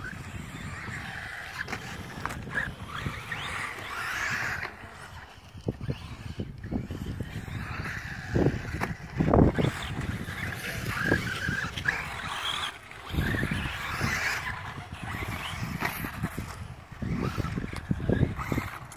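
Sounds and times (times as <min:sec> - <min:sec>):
electric motor whining: 0:00.0 - 0:18.9.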